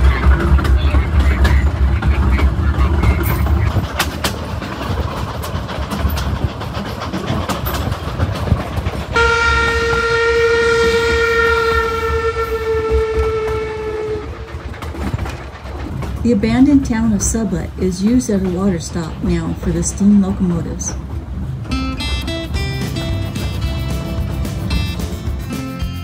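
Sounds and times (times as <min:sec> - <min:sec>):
train rumbling and clacking: 0:00.0 - 0:26.0
steam locomotive whistle: 0:09.1 - 0:14.6.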